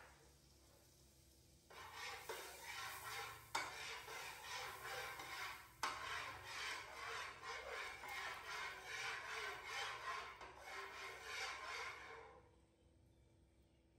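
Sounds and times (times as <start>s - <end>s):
metal spatula scraping a pan: 1.6s - 12.6s.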